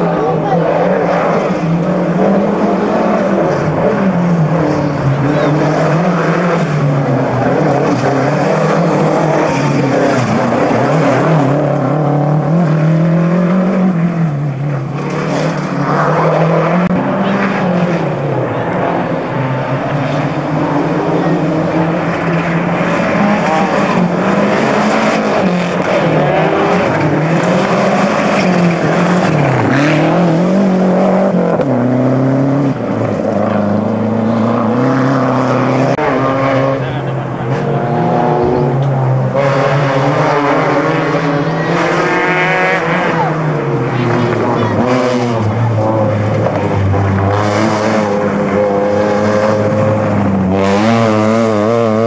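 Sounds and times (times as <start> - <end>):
rally car engines revving: 0.0 - 52.0.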